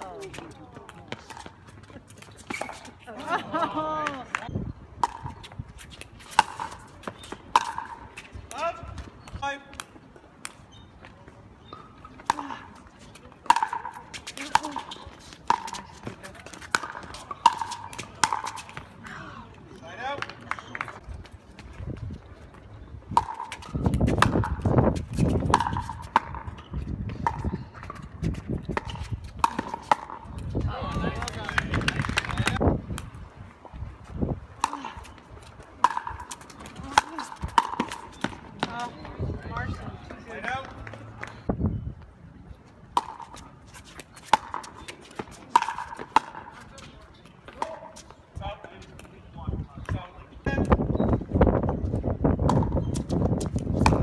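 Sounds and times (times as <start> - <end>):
shoes on hard court: 0.0 - 3.4, 43.0 - 49.2
wind rumbling on microphone: 3.8 - 7.1, 20.9 - 42.9, 48.3 - 54.0
ball tapping on court: 13.4 - 18.9, 23.2 - 30.6, 35.8 - 39.0, 43.0 - 43.4, 52.4 - 54.0.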